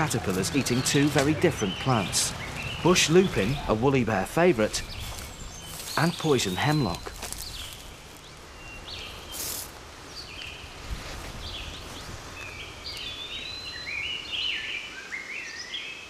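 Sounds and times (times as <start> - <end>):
birds singing: 0.0 - 16.0
low steady hiss: 0.0 - 16.0.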